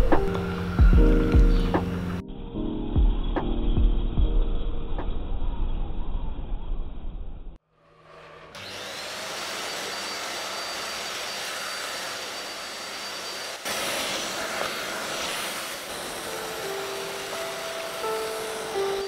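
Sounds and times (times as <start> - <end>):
vacuum cleaner running: 7.8 - 19.0.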